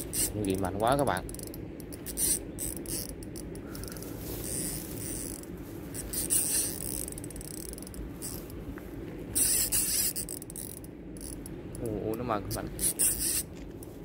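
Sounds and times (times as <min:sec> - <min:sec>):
fishing reel clicking: 0:00.0 - 0:08.5, 0:09.4 - 0:13.5.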